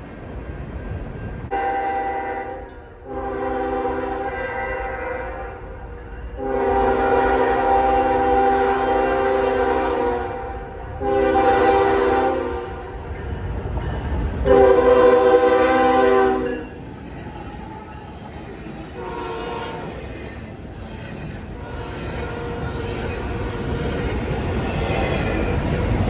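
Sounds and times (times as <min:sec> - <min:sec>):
low rumble of train: 0:00.0 - 0:26.0
locomotive air horn blasts: 0:01.5 - 0:13.0, 0:14.4 - 0:16.8, 0:19.0 - 0:20.0, 0:21.6 - 0:24.1.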